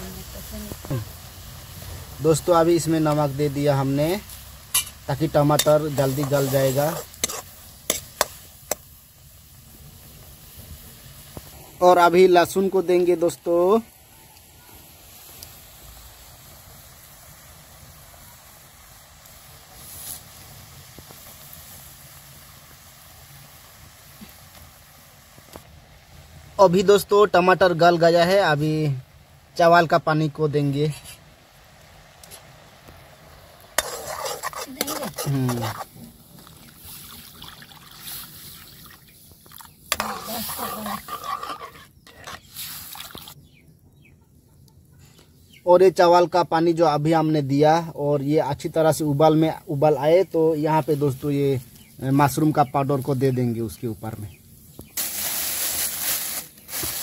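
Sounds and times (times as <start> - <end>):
liquid simmering with bubbling hiss: 0.0 - 44.0, 44.6 - 57.0
metal ladle stirring and scraping: 4.3 - 8.9, 33.8 - 37.2, 39.9 - 43.3
water poured into a pan: 33.7 - 40.9, 42.4 - 43.4.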